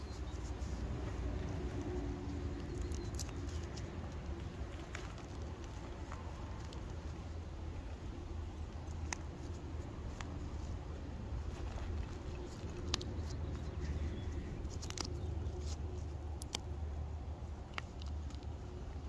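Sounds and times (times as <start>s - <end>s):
sharp chalk cracks: 0.0s - 7.2s, 11.5s - 19.0s
chalk crunching between fingers: 0.0s - 7.9s, 8.6s - 19.0s.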